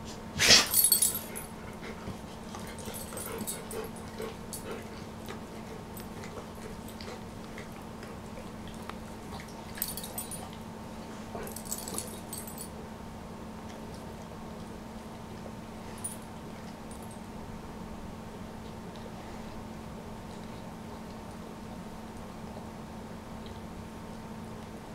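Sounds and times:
dogs licking wetly: 0:03.8 - 0:09.8.

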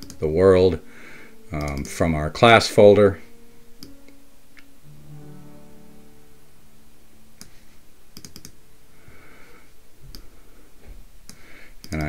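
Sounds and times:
computer mouse clicks: 0:00.0 - 0:00.2, 0:08.2 - 0:08.6, 0:11.3 - 0:12.0
low steady hum: 0:00.0 - 0:11.8.

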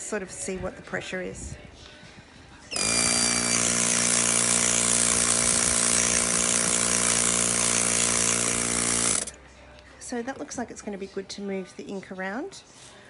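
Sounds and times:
air compressor motor hum: 0:02.7 - 0:09.4.

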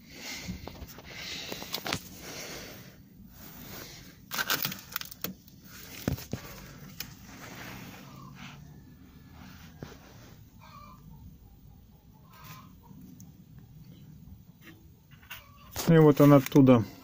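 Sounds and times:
crunching and rustling: 0:03.3 - 0:08.6.

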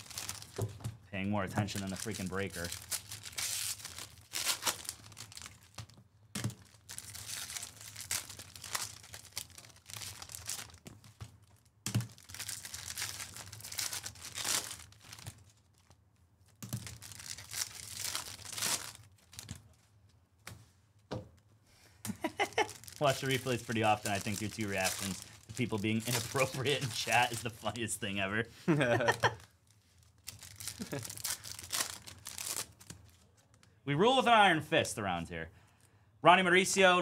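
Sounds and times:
foil wrappers tearing and crinkling: 0:00.0 - 0:00.7, 0:01.5 - 0:16.0, 0:16.7 - 0:19.6, 0:22.2 - 0:27.9, 0:28.9 - 0:33.3.

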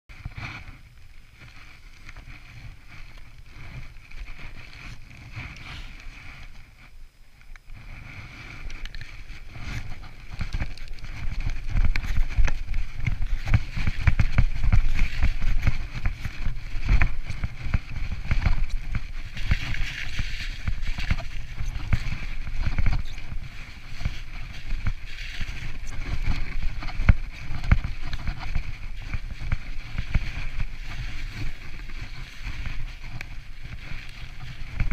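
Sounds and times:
wind buffeting microphone: 0:07.7 - 0:34.9
bike rattling over bumps: 0:07.8 - 0:34.9.

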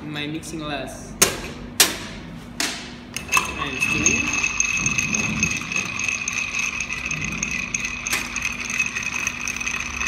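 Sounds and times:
ice clinking in stirred glass: 0:03.2 - 0:10.0.

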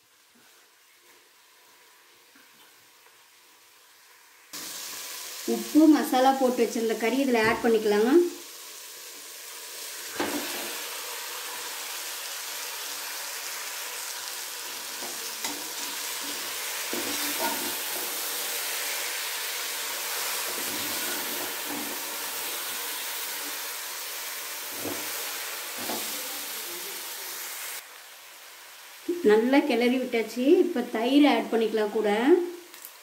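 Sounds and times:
chicken sizzling in pot: 0:00.0 - 0:33.0.

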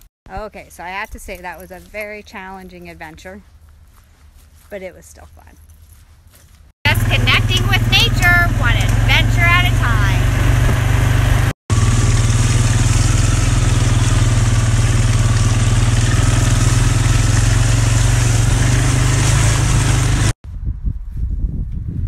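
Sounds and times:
tyres on dirt ground noise: 0:00.0 - 0:20.3
rustling: 0:02.9 - 0:06.7
small vehicle engine running: 0:06.9 - 0:20.4.

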